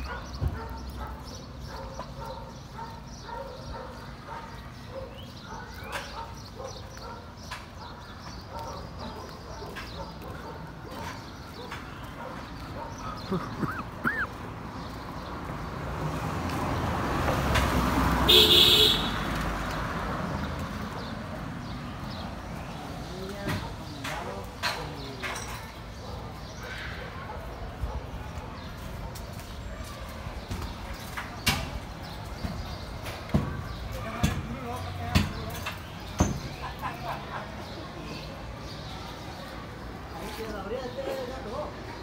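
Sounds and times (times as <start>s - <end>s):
dog barking: 0.0s - 13.4s, 26.0s - 29.3s
car horn toot: 18.3s - 19.3s.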